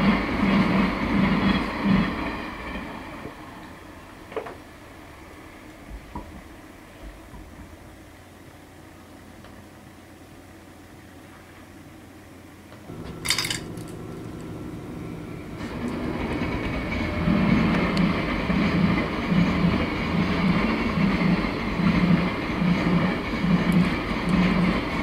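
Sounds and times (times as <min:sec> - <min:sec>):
freight train passing: 0:00.0 - 0:09.1, 0:12.2 - 0:25.0.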